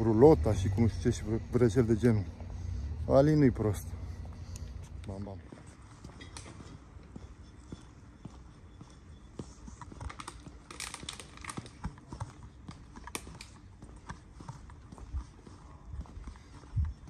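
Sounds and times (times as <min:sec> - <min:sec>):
low rumble: 0:00.0 - 0:05.1
footsteps on paved path: 0:00.0 - 0:17.0.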